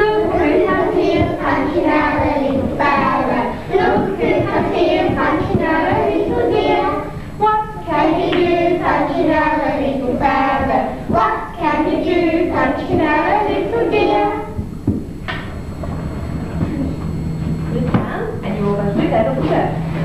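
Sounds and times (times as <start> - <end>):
children singing together: 0.0 - 14.6.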